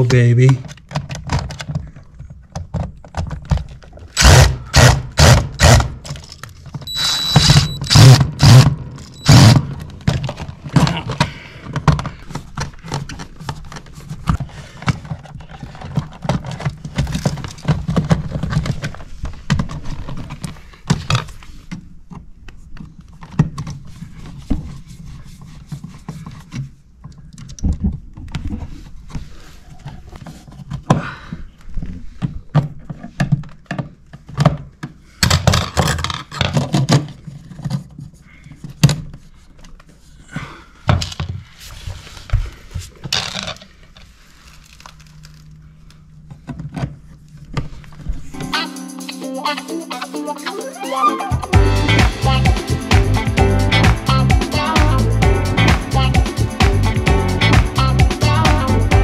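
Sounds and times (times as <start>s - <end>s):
cordless drill whining: 4.2s - 5.8s, 6.9s - 9.6s.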